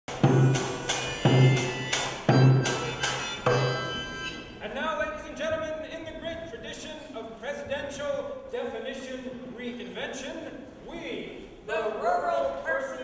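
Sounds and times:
person speaking: 0:04.4 - 0:13.0.

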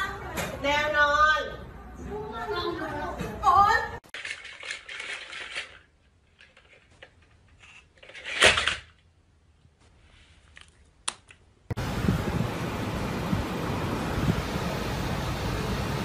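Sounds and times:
toy dinosaur clattering and clicking: 0:04.1 - 0:07.3.

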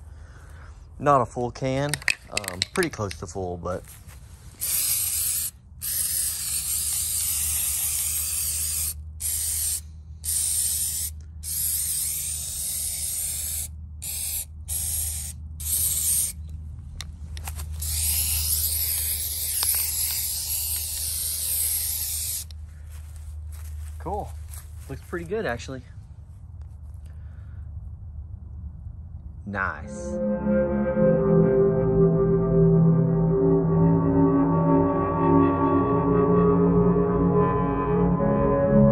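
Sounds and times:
aerosol can hissing: 0:04.6 - 0:16.4, 0:17.8 - 0:22.5.

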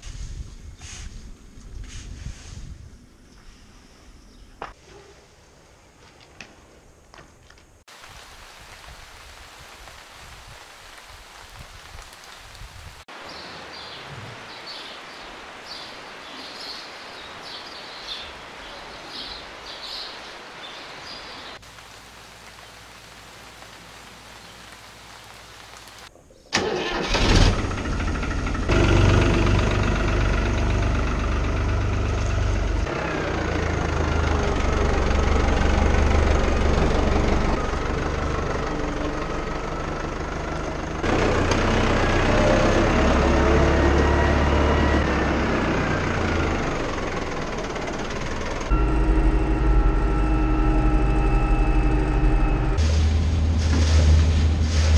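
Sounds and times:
steady outdoor hiss: 0:00.8 - 0:27.2
tractor diesel engine running: 0:26.6 - 0:54.9.

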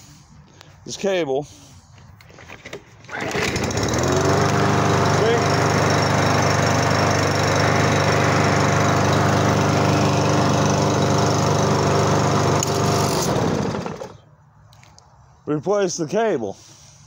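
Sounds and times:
lawn mower engine running: 0:02.4 - 0:14.2.

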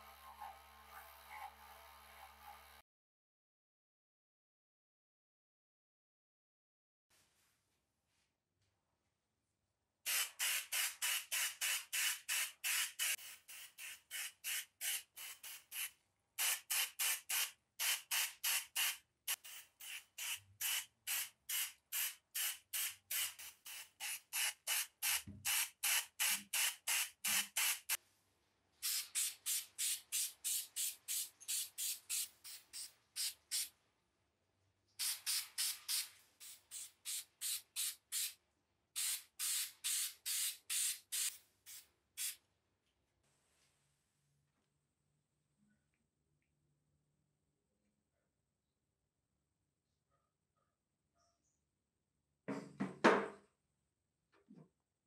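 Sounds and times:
spray paint can hissing: 0:10.1 - 0:28.0, 0:28.8 - 0:33.7, 0:35.0 - 0:38.4, 0:39.0 - 0:42.4.

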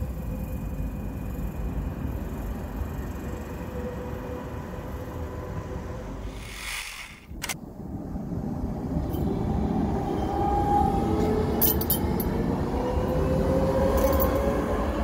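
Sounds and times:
tram rumbling on rails: 0:00.0 - 0:15.0
sharp clicks: 0:06.5 - 0:07.6.

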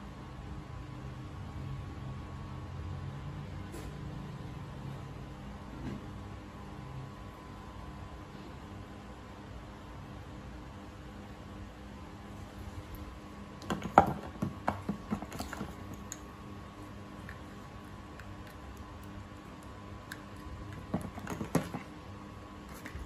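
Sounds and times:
faint steady hum: 0:00.0 - 0:23.0
clicks and rustles of handling: 0:12.9 - 0:16.3, 0:17.1 - 0:21.9.

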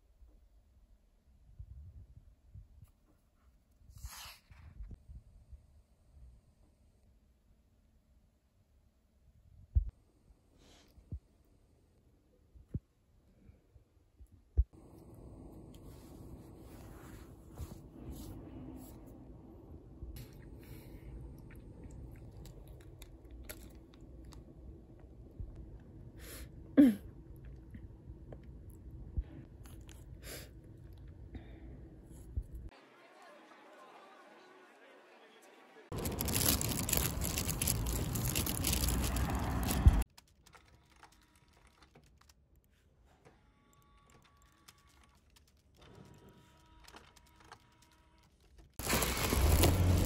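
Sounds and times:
faint chewing of crisp biscuit: 0:20.2 - 0:26.0, 0:27.4 - 0:31.2, 0:35.9 - 0:42.9.

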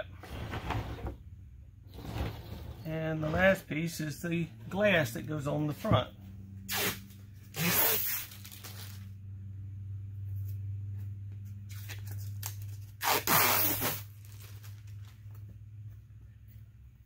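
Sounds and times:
plastic film peeling off: 0:07.6 - 0:09.1.

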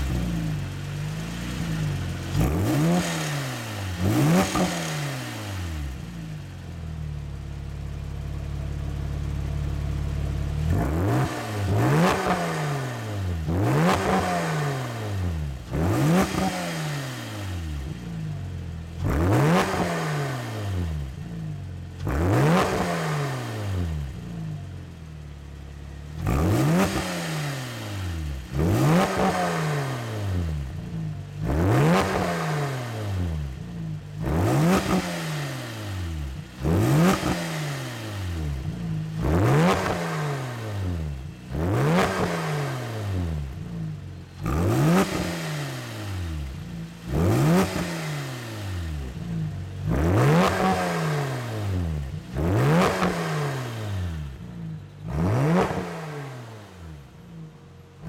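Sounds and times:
car engine idling: 0:00.0 - 0:14.2, 0:48.6 - 0:53.2, 0:53.8 - 0:58.0
car engine revving: 0:00.0 - 0:58.0.

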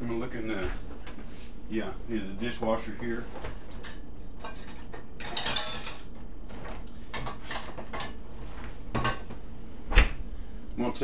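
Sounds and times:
dishes clattering in dishwasher: 0:04.4 - 0:08.2, 0:08.9 - 0:09.3.

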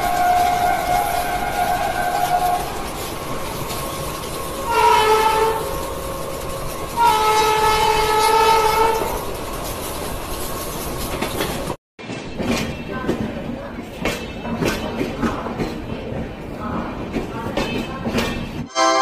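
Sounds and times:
train wheel and running noise: 0:00.0 - 0:18.7
locomotive horn blasts: 0:04.7 - 0:05.7, 0:07.0 - 0:09.1.

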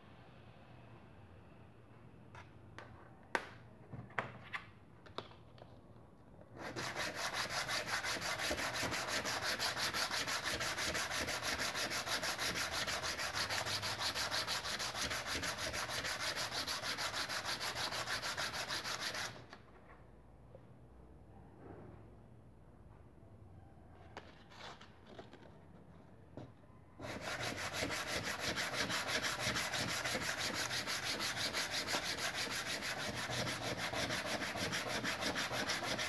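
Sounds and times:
pad scraping on sandpaper: 0:06.6 - 0:19.4, 0:27.0 - 0:36.0.

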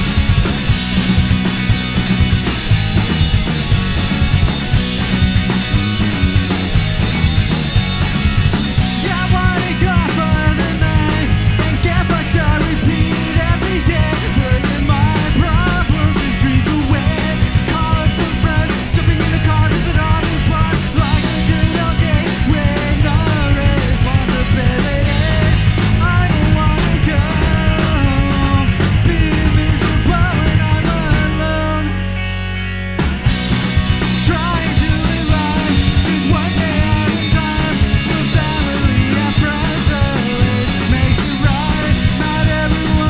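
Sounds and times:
drum kit: 0:00.0 - 0:32.0, 0:33.0 - 0:43.0
bass guitar: 0:00.0 - 0:43.0
electric guitar: 0:00.0 - 0:43.0
man singing lead vocal: 0:08.8 - 0:32.0, 0:34.2 - 0:43.0.

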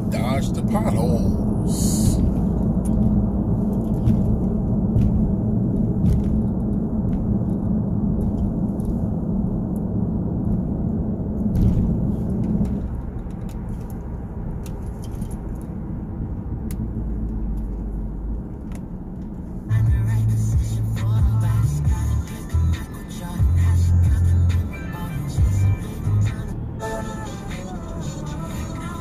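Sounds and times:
tyres rumbling on rough pavement: 0:00.0 - 0:29.0
light clicks and rattles: 0:12.3 - 0:15.8.

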